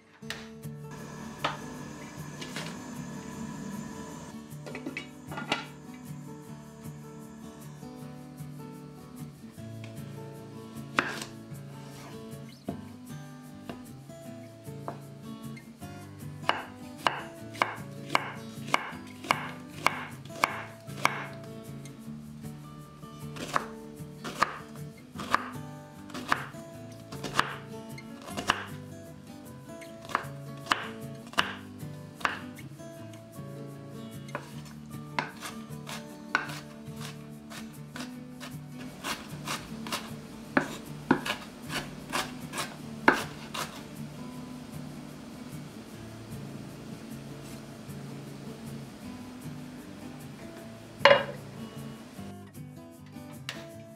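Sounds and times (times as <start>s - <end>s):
knife slicing onion on board: 11.0s - 11.4s, 16.5s - 21.4s, 23.4s - 26.5s, 27.1s - 28.8s, 30.0s - 32.6s, 34.3s - 44.7s, 51.0s - 51.6s.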